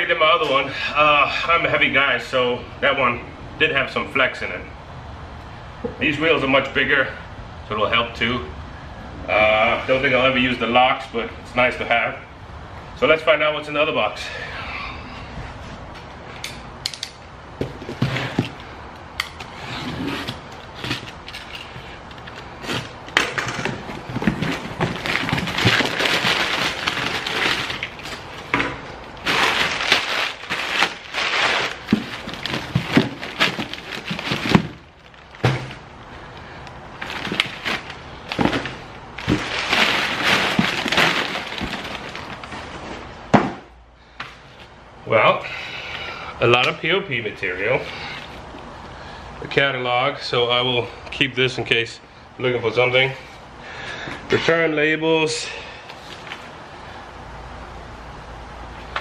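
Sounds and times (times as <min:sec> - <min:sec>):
packing paper crackling and rustling: 0:19.4 - 0:43.1
cardboard box being handled: 0:23.8 - 0:28.6, 0:29.2 - 0:34.8, 0:37.0 - 0:43.0.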